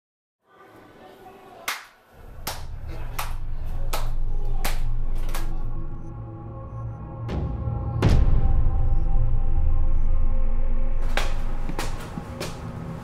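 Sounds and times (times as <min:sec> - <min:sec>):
sharp clap-like percussion hits: 0:01.7 - 0:05.7, 0:11.0 - 0:12.7
low steady drone: 0:02.2 - 0:13.0.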